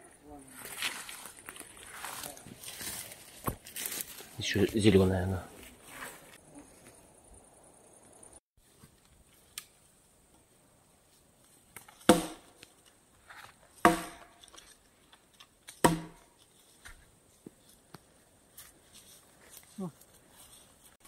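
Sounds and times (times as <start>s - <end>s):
wooden pole knocking tree trunk: 12.0s - 12.6s, 13.8s - 14.5s, 15.7s - 16.3s.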